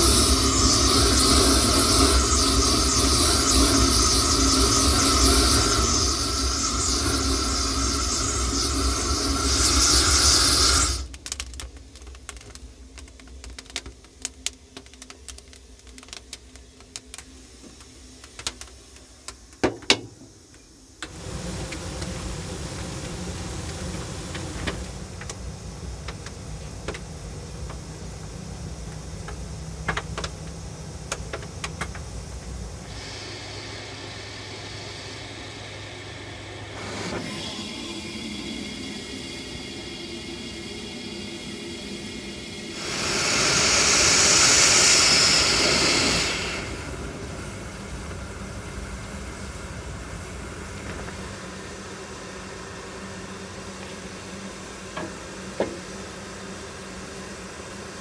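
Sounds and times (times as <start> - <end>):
low hum: 0.0 - 13.7, 21.0 - 55.0
wood fire crackling: 0.0 - 19.6, 21.0 - 32.9
steady rushing hiss: 0.0 - 58.0.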